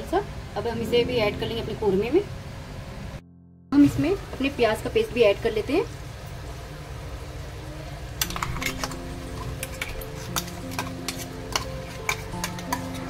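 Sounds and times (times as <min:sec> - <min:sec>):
soft background music: 0:00.1 - 0:02.4, 0:03.2 - 0:06.8, 0:07.5 - 0:13.0
curry sizzling: 0:03.8 - 0:13.0
metal spoon scraping steel bowl: 0:08.2 - 0:13.0.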